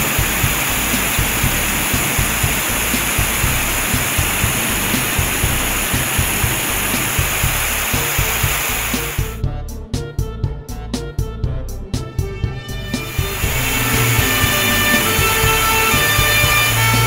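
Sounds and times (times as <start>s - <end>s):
fire hose spraying water: 0.0s - 9.4s, 12.8s - 17.0s
background music with beat: 0.0s - 17.0s.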